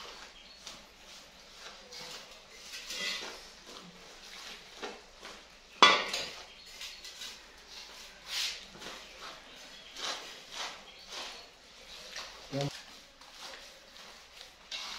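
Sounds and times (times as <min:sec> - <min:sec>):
metal pots and utensils clinking: 0:01.9 - 0:05.0, 0:05.7 - 0:07.2.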